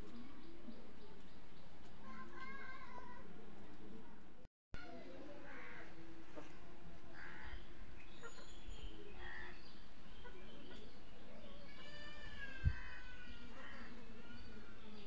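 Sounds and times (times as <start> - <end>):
harsh bird calls: 7.2 - 15.0.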